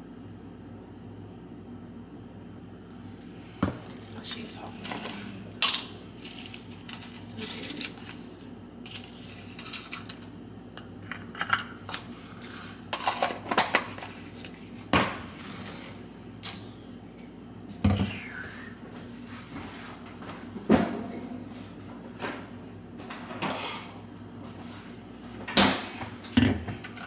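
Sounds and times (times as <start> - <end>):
low steady hum: 0.0 - 27.0
containers and utensils clattering: 4.8 - 8.3, 8.9 - 10.3, 11.1 - 14.8.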